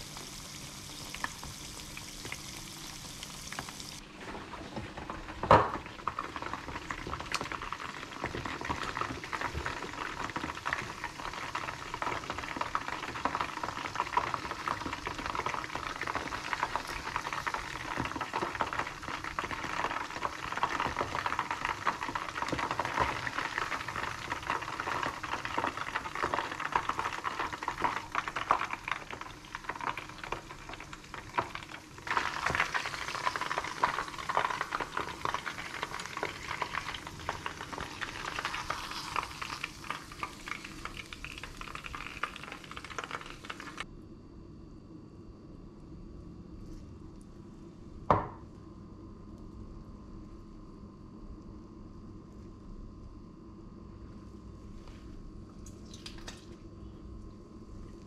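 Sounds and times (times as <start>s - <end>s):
chicken frying in hot oil: 0.0s - 43.9s.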